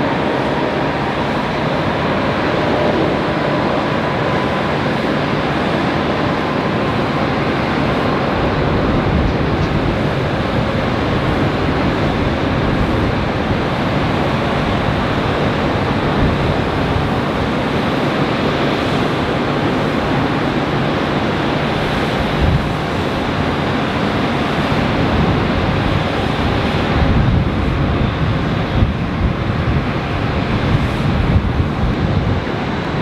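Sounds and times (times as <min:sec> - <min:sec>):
distant jet engines roaring: 0:00.0 - 0:33.0.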